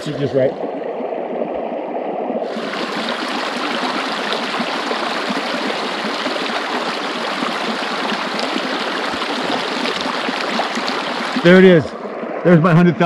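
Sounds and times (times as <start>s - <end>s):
creek rushing over rocks: 2.4s - 12.8s.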